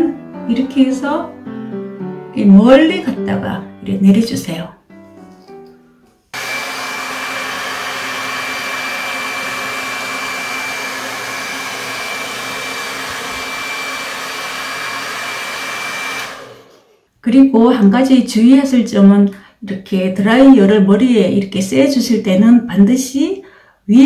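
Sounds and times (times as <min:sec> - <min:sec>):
hair dryer running: 0:06.4 - 0:17.0.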